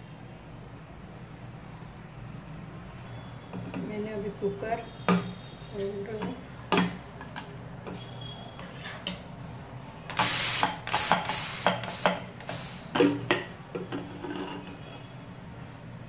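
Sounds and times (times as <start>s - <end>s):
steam hissing: 10.1s - 13.0s.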